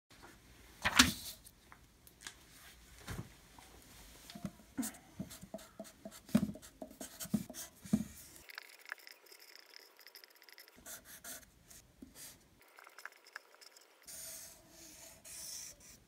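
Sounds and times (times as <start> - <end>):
marker writing on paper: 5.2 - 8.3, 9.3 - 16.0.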